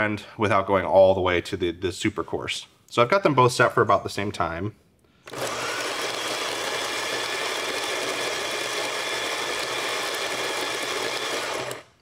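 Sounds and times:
grinder motor whirring: 5.2 - 12.0
coffee beans grinding: 5.3 - 12.0.

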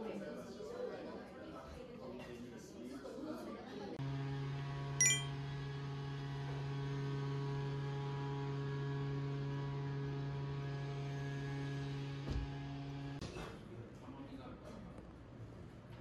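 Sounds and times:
high bell-like ding: 5.0 - 5.3.

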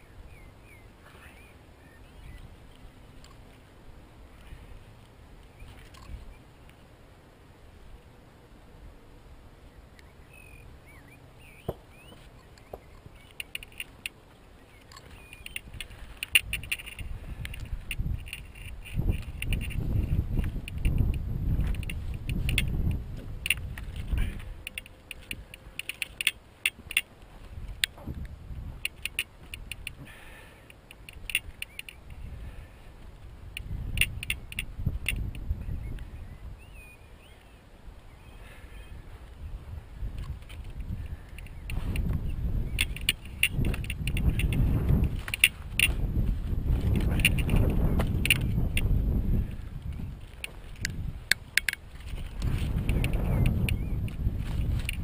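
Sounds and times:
rods clicking and rustling: 11.7 - 32.2, 40.1 - 55.0.

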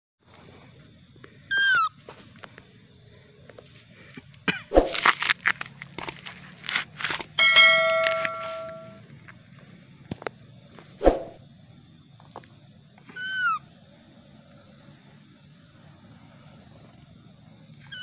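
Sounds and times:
bell-like chime: 7.3 - 9.0.

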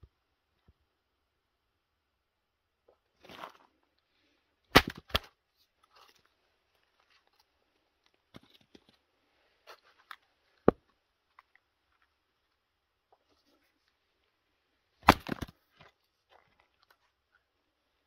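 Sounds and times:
axe chopping firewood: 4.7 - 5.3, 15.0 - 15.6
knocks of wood pieces handled: 15.0 - 17.0.

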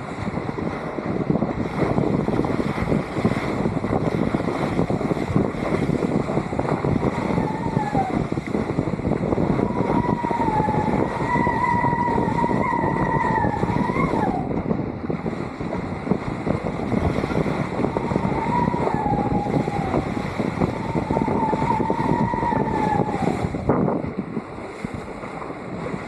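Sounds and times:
wind rushing over microphone: 0.0 - 26.0
high wavering whistle: 7.1 - 8.3, 9.5 - 14.5, 17.8 - 23.5.

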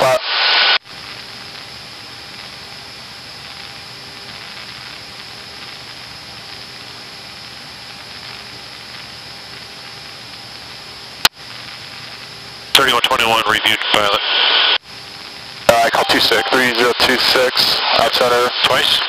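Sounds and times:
faint hum tones: 0.9 - 18.8
cockpit noise hiss: 11.6 - 19.0.

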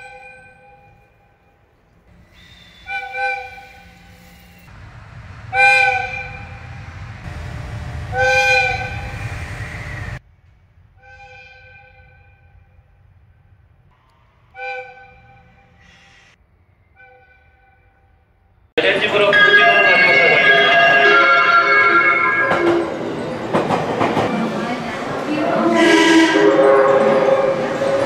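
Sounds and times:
locomotive air whistle blasts: 2.3 - 10.2, 14.5 - 17.9, 19.2 - 22.9, 25.7 - 28.0
low running rumble: 4.7 - 11.0.

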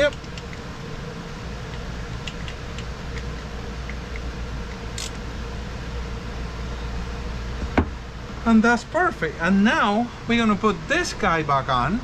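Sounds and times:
background hum and hiss: 0.0 - 12.0
wrench metal click: 5.0 - 5.2.

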